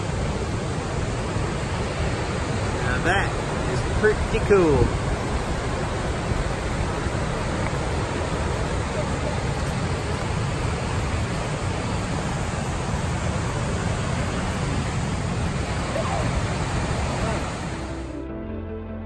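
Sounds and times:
waterfall pouring over rock: 0.0s - 17.8s
river rapids rushing: 0.0s - 18.2s.

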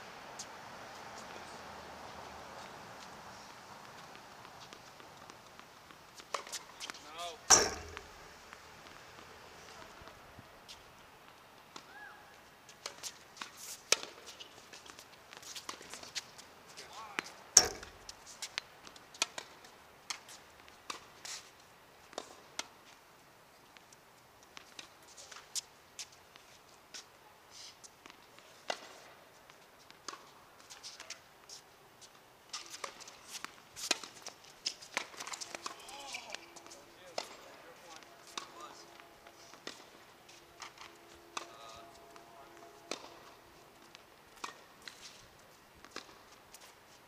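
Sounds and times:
light footsteps and shoe scuffs: 0.3s - 21.6s, 23.6s - 47.0s
racket hitting tennis ball: 6.2s - 9.0s, 12.7s - 14.3s, 17.2s - 18.6s, 32.5s - 45.2s, 45.8s - 46.3s.

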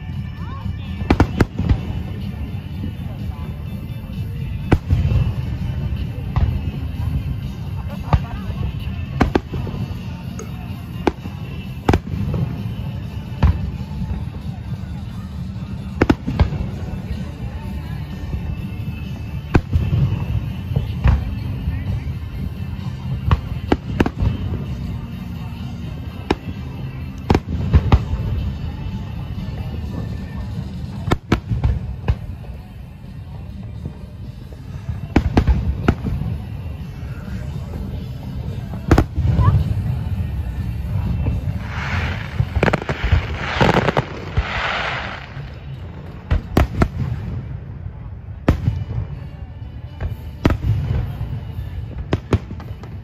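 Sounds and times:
fireworks bangs: 18.1s - 32.5s, 38.6s - 49.4s
fireworks hiss: 38.8s - 47.3s.

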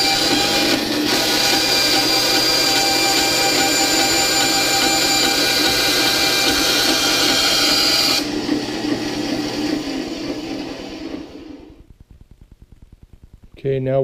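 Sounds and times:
bandsaw cutting sheet metal: 0.0s - 8.3s
saw running free: 0.0s - 8.3s.

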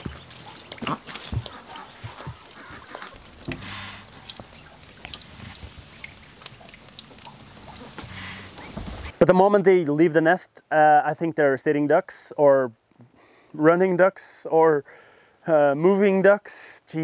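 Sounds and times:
rain dripping: 0.0s - 10.0s.

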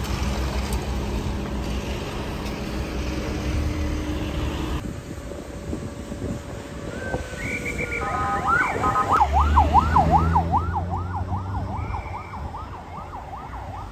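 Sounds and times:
ambulance siren yelping: 7.8s - 13.9s.

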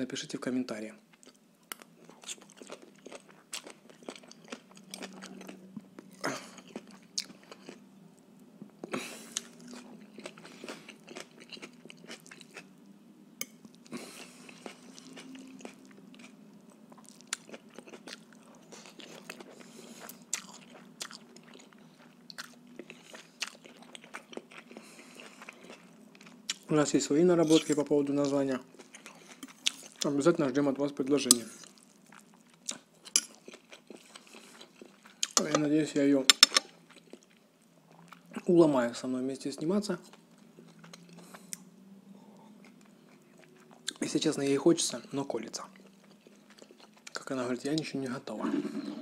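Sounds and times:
man chewing noodles: 1.1s - 7.8s, 8.6s - 12.8s, 13.5s - 26.7s, 28.7s - 30.1s, 31.3s - 35.5s, 36.8s - 38.4s, 40.1s - 41.7s, 45.8s - 47.2s.

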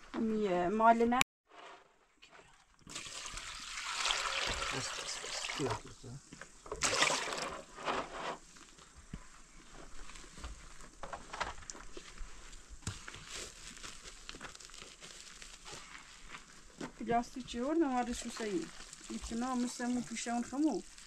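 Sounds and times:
faint crinkling and rustling: 7.4s - 21.0s.

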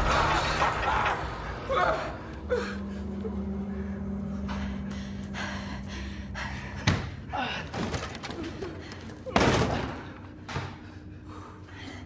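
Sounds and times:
low drone: 0.0s - 9.4s.

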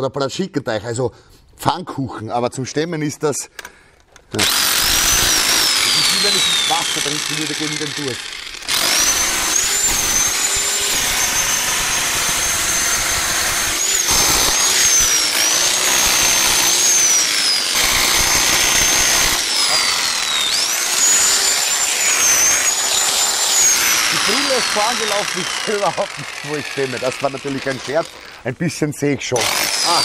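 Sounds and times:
high motor whine: 4.4s - 28.3s
electric chipping hammer hammering: 4.4s - 28.4s, 29.4s - 30.0s.

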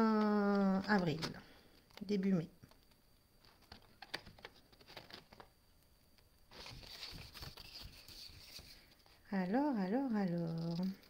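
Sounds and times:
paper sheet rustling: 3.4s - 5.5s, 6.5s - 9.2s.

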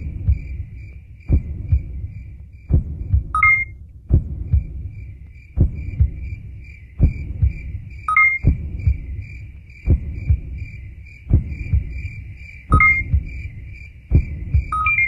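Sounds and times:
low double thumps like heartbeat: 0.0s - 15.0s
faint pulsing high tone: 3.4s - 3.8s, 8.1s - 8.6s, 12.7s - 13.4s, 14.6s - 15.0s.

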